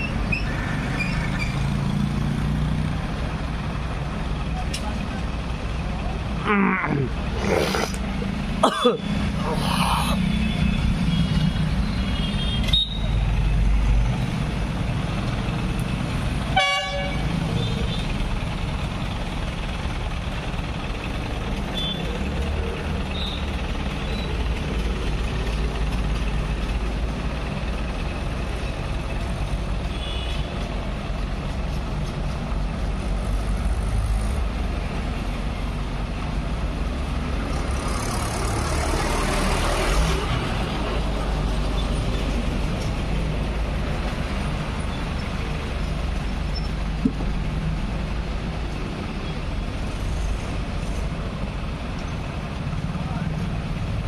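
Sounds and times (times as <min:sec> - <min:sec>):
street traffic: 0:00.0 - 0:54.0
diesel engine running: 0:17.1 - 0:29.9.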